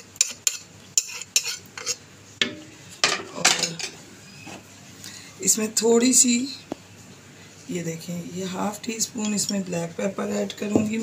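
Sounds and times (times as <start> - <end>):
spoon scraping and knocking pan: 0.0 - 3.9.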